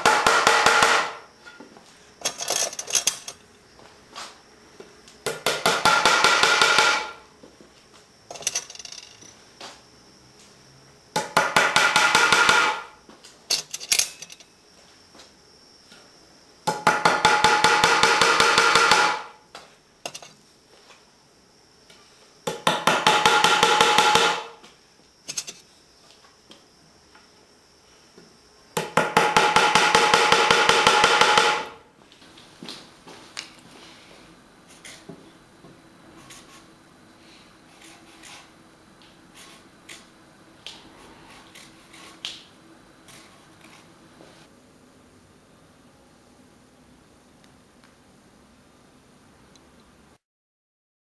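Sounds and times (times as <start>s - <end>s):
hammer driving nails into wood: 0.0s - 1.2s, 5.3s - 7.2s, 11.2s - 12.9s, 16.7s - 19.3s, 22.5s - 24.5s, 28.8s - 31.7s.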